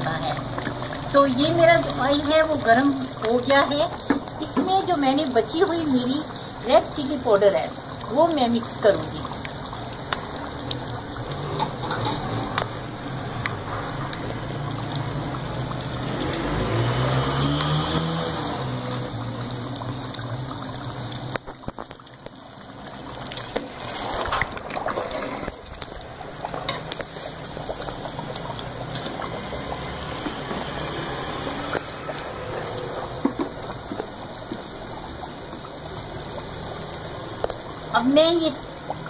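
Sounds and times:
oil sizzling in a frying pan: 0.0s - 21.5s, 26.7s - 33.5s.

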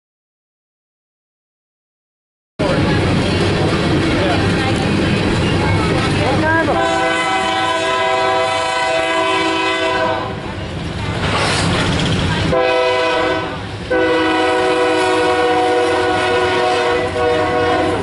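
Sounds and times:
train cars rumbling on rails: 2.6s - 18.0s
locomotive air horn blasts: 6.8s - 10.4s, 12.5s - 18.0s.

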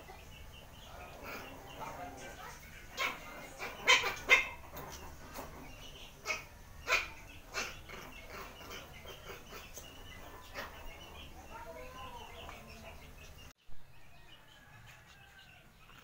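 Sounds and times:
puppies barking and yipping: 0.0s - 13.5s.

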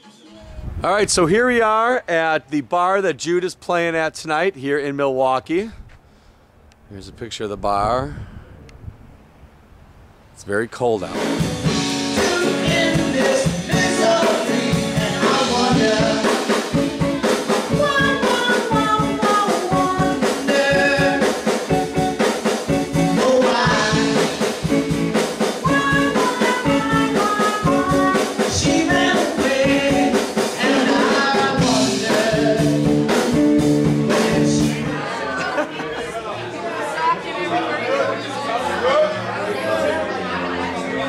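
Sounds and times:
drum kit beat: 11.1s - 35.0s
electric guitar: 11.2s - 35.2s
woman singing: 12.2s - 21.4s, 23.1s - 24.4s, 25.6s - 32.8s.

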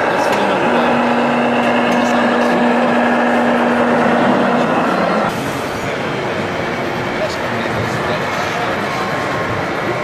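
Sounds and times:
steady low drone: 0.0s - 5.8s
exhibition hall crowd noise: 0.0s - 10.0s.

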